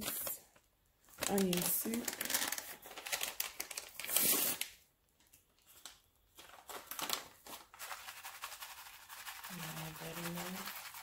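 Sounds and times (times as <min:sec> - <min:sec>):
packet crinkling and rustling: 0:00.0 - 0:11.0
packet tearing open: 0:01.2 - 0:04.8.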